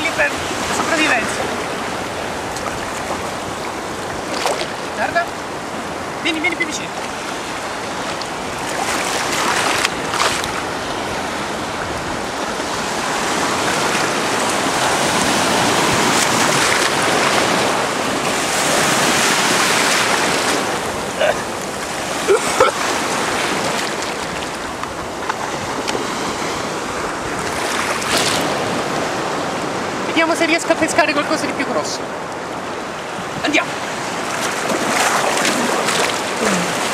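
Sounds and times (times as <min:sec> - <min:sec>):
sea waves breaking: 0:00.0 - 0:36.9
sharp splashes: 0:04.2 - 0:04.8.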